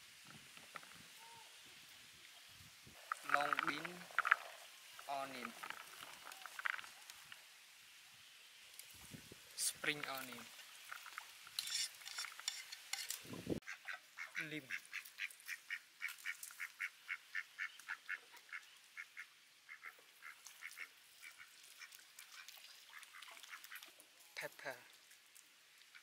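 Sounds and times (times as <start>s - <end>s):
bird calling: 13.7s - 21.5s.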